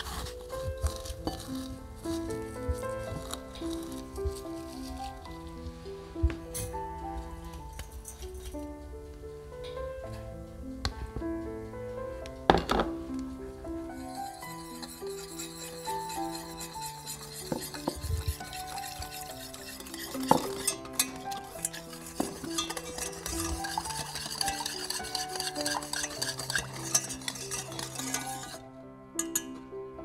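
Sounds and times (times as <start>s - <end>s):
background music: 0.0s - 30.0s
whisk clicking against saucepan: 14.0s - 28.6s, 29.2s - 29.5s.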